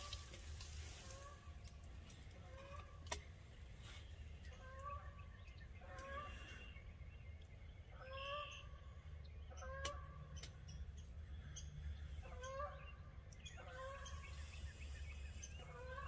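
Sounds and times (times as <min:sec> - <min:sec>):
wild turkey calling: 0:12.2 - 0:16.0.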